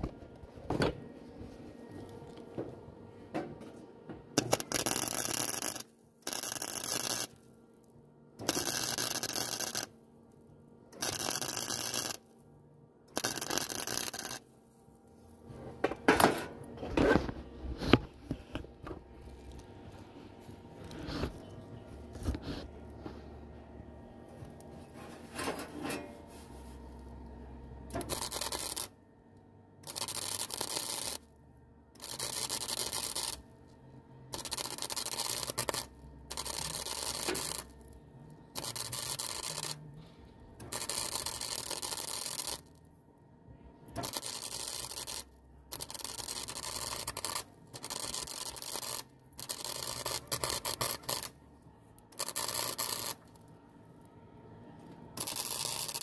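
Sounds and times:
welding crackling and hissing: 0:04.4 - 0:07.4, 0:08.4 - 0:09.9, 0:11.0 - 0:12.2, 0:13.2 - 0:14.4, 0:28.0 - 0:28.9, 0:29.8 - 0:31.2, 0:32.0 - 0:33.4, 0:34.3 - 0:37.8, 0:38.6 - 0:39.8, 0:40.7 - 0:42.6, 0:44.0 - 0:51.4, 0:52.2 - 0:53.3, 0:55.2 - 0:56.0.

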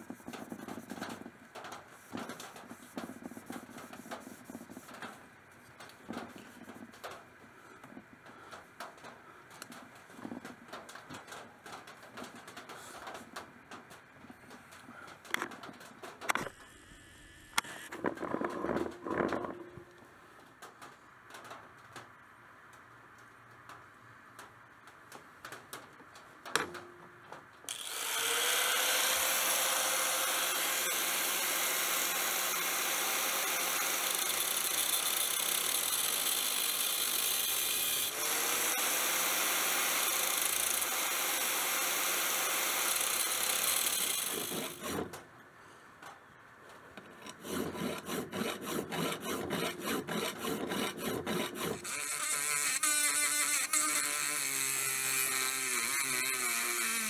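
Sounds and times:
angle grinder cutting steel: 0:27.7 - 0:45.1, 0:47.2 - 0:57.0
rotary tool grinding blade: 0:27.7 - 0:45.2, 0:47.2 - 0:57.0.

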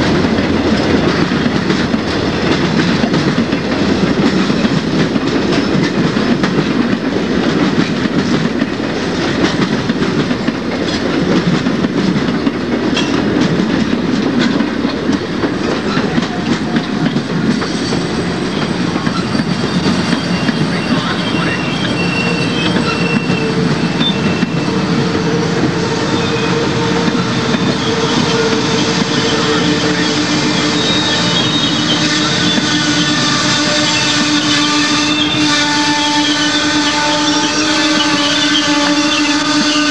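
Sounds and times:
train wheels rumbling on rails: 0:00.0 - 0:39.9
high wheel squeals: 0:17.7 - 0:39.9.

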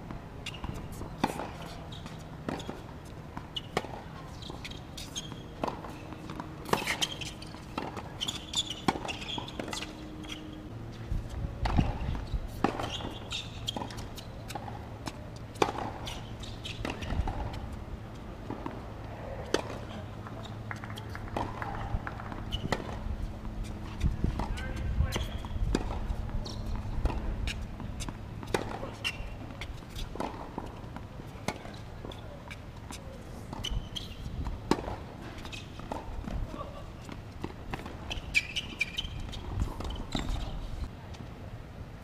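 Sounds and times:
shoe scuffs on court: 0:00.4 - 0:17.7, 0:18.4 - 0:40.9
racket hitting ball: 0:05.2 - 0:10.5, 0:11.6 - 0:17.6, 0:18.4 - 0:32.2, 0:32.9 - 0:40.4
ball bouncing on court: 0:19.5 - 0:23.1.

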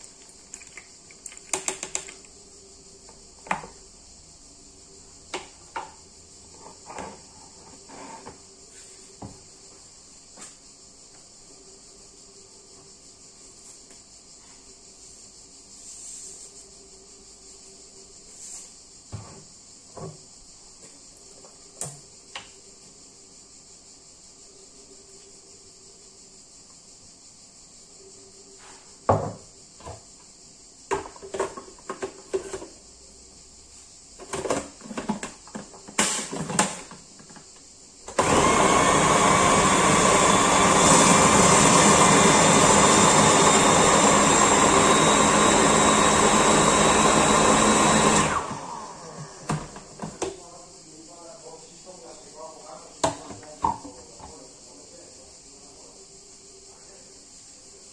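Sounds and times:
electric food processor running: 0:38.1 - 0:50.1.

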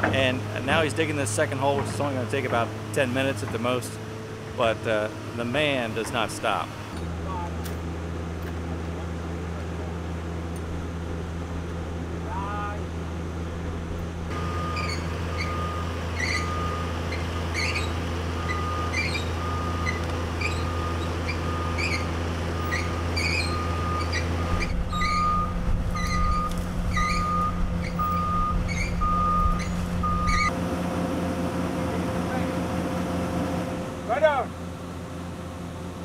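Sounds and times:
diesel engine running: 0:00.0 - 0:36.0
back-up alarm beeping: 0:14.3 - 0:17.6, 0:18.4 - 0:30.5.

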